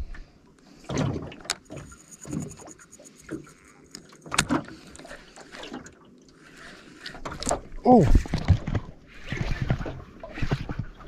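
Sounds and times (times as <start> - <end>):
water slapping against boat hull: 7.1 - 11.0.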